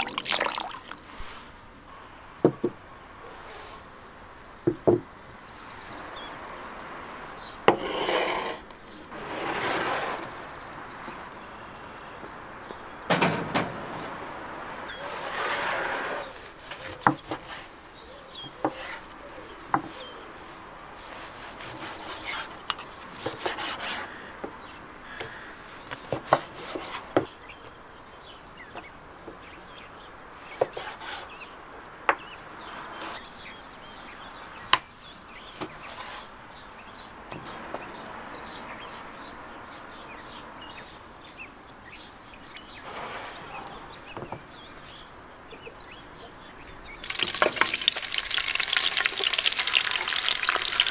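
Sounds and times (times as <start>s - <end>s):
knife knocking on wooden board: 4.6s - 5.0s.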